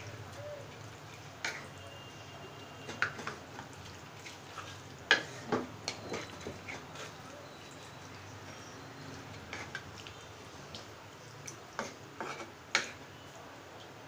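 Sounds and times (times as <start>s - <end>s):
spatula stirring meat in marinade: 0.0s - 13.2s
spatula knocking and scraping pan: 5.1s - 7.1s, 11.8s - 13.0s.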